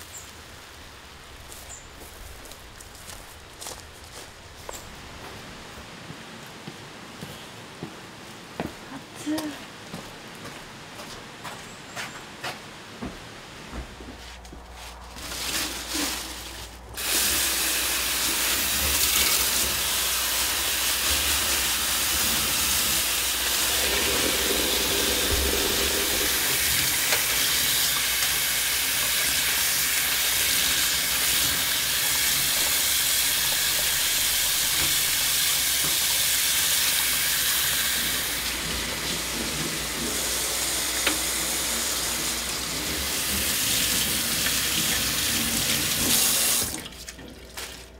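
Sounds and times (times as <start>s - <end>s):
water running from a tap: 17.0s - 47.9s.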